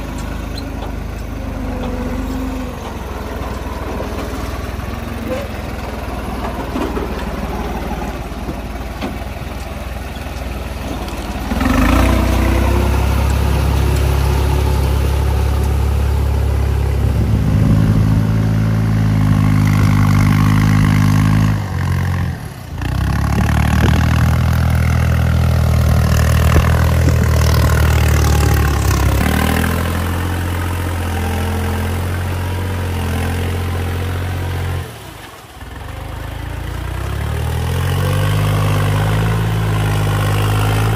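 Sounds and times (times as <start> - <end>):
tractor diesel engines under load: 0.0 - 40.9.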